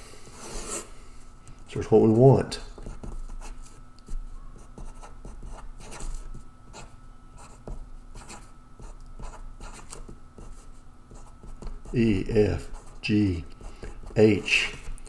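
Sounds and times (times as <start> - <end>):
pen scratching on paper: 4.6 - 15.0.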